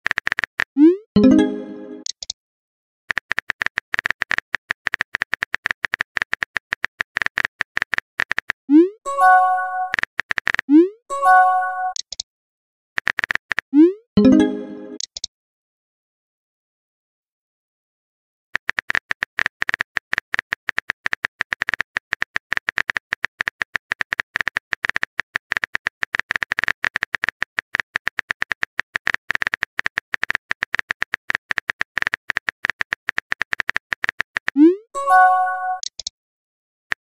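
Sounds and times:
phone keyboard tapping clicks: 0:35.8 - 0:36.1.

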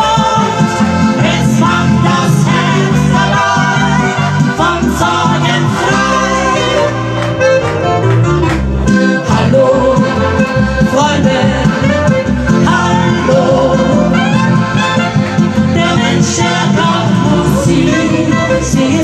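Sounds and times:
women singing together: 0:00.0 - 0:07.0, 0:09.3 - 0:14.5, 0:15.7 - 0:19.0
accordion: 0:00.0 - 0:19.0
folk band playing polka: 0:00.0 - 0:19.0.

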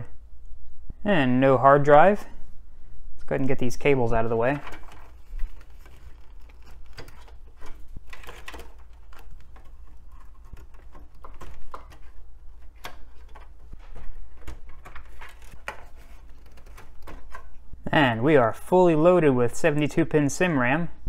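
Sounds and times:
cables rustling: 0:03.4 - 0:17.9.

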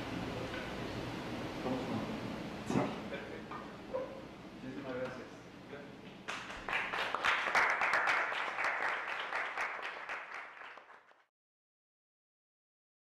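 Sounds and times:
audience applauding: 0:06.3 - 0:11.3.

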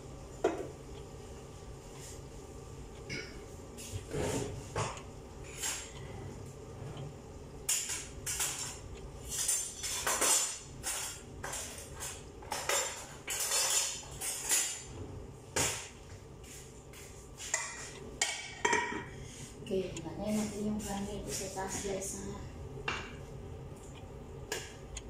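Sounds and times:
cutlery clattering in a drawer: 0:07.8 - 0:14.8.

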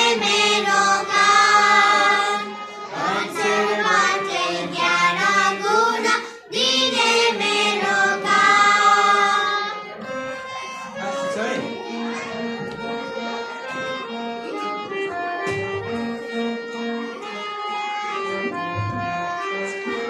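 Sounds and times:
girls singing in unison: 0:00.0 - 0:09.8.

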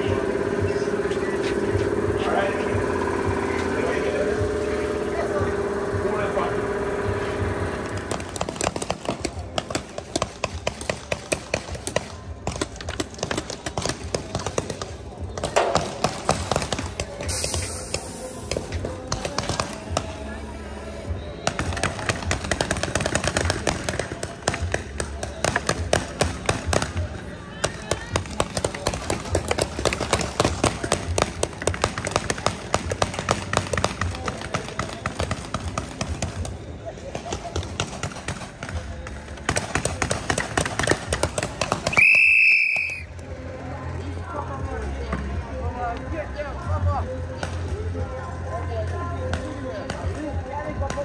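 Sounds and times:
paintball guns popping: 0:07.8 - 0:20.4, 0:21.4 - 0:43.1.

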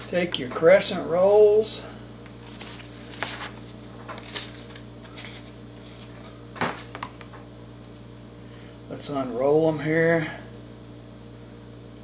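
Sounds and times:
paper wrapper rustling: 0:02.4 - 0:06.3.

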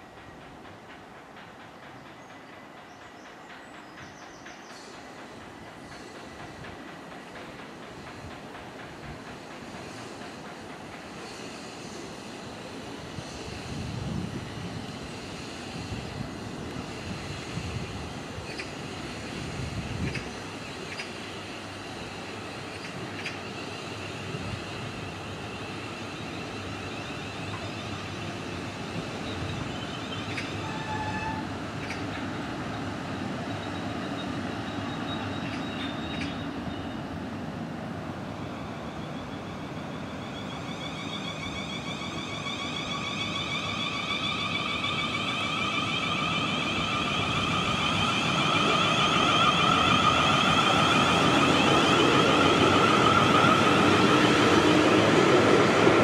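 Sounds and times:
train traction motors whining: 0:38.6 - 0:56.0.

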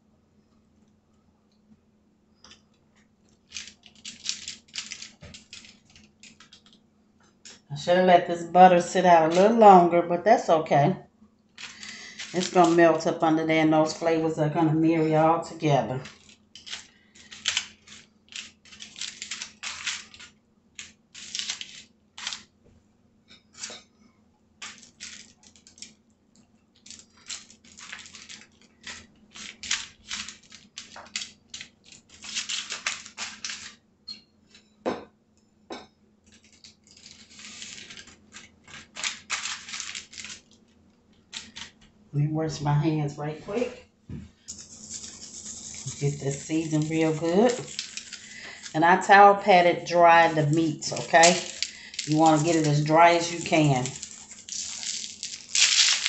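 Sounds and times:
aluminium foil crinkling: 0:03.3 - 0:06.8, 0:08.8 - 0:09.7, 0:11.5 - 0:14.4, 0:15.0 - 0:22.6, 0:24.6 - 0:33.8, 0:36.2 - 0:41.9, 0:44.4 - 0:56.0.

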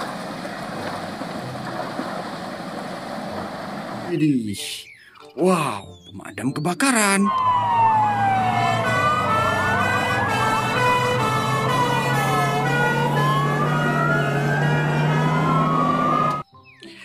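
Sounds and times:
sirens wailing: 0:06.8 - 0:16.5
truck engines humming: 0:07.2 - 0:16.4.

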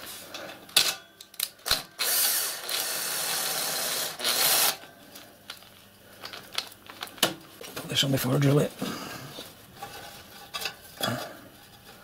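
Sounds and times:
cordless drill whirring: 0:01.7 - 0:04.8.

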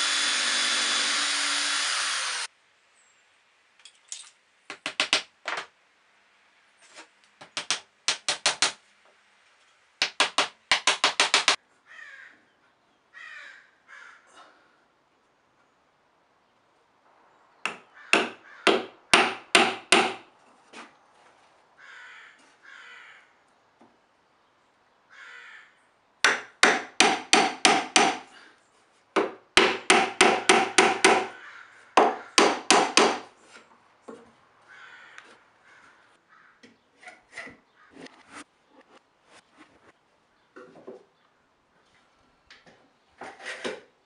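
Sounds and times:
hammer driving nails into wood: 0:07.4 - 0:08.8, 0:10.0 - 0:11.6, 0:17.7 - 0:20.2, 0:26.2 - 0:28.2, 0:29.2 - 0:31.3, 0:32.0 - 0:33.3.

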